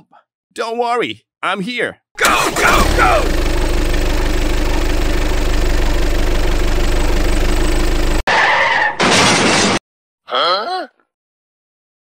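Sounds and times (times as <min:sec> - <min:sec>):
truck engine rumbling under strain: 0:02.2 - 0:08.3.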